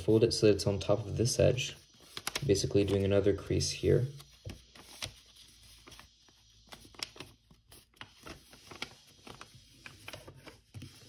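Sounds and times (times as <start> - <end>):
paper rustling and crinkling: 1.9 - 3.2, 4.1 - 11.0.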